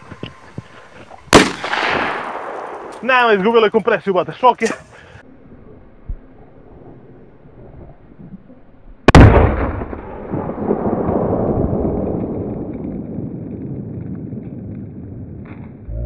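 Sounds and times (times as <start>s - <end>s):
firecracker bang under a pot: 1.3s - 2.4s
rumbling tail: 5.2s - 16.0s.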